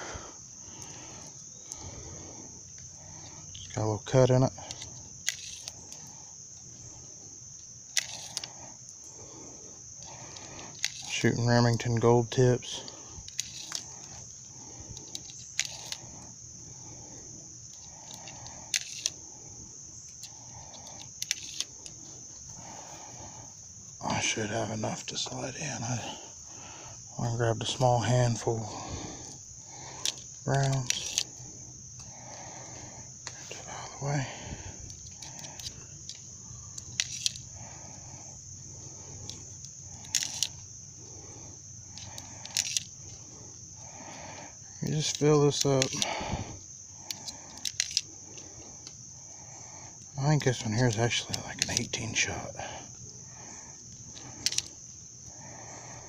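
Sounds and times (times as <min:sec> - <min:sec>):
cartridges clicking into rifle magazine: 0:36.8 - 0:37.4, 0:40.0 - 0:40.6
cartridges clicking into magazine: 0:40.0 - 0:40.6.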